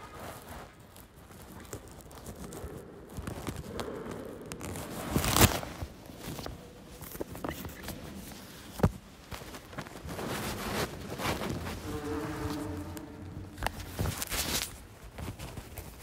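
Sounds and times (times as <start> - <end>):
rustling: 0.0 - 16.0.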